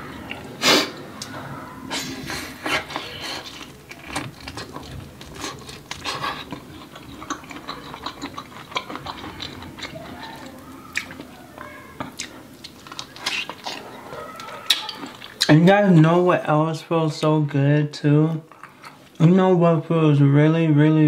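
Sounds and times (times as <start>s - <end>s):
chewing corn on the cob: 2.3s - 15.6s.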